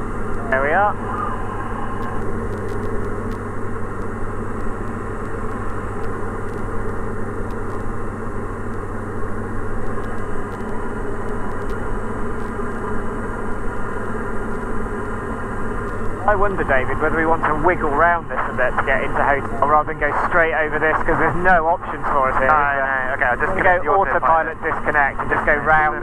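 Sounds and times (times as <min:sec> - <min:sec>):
aircraft engine and propeller drone: 0:00.0 - 0:26.0.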